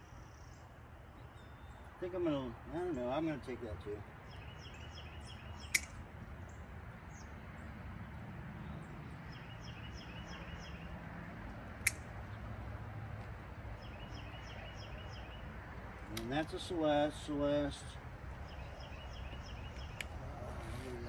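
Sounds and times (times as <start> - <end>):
birds chirping: 0.0 - 21.0
hand pruners snipping: 5.6 - 6.0, 11.8 - 12.1, 16.1 - 16.6.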